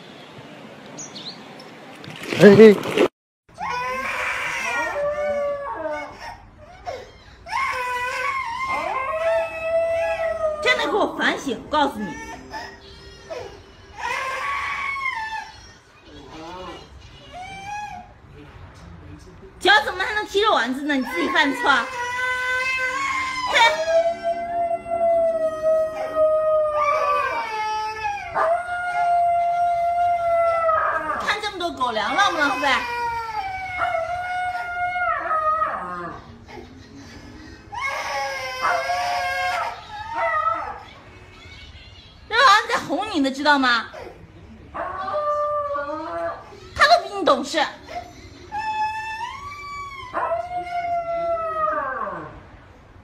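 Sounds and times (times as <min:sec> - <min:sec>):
dog howling: 0:03.6 - 0:06.3, 0:07.5 - 0:15.6, 0:21.1 - 0:31.4, 0:48.5 - 0:52.4
toddler crying: 0:03.6 - 0:18.2, 0:20.8 - 0:31.3, 0:31.9 - 0:34.9, 0:37.7 - 0:40.8, 0:47.8 - 0:51.0.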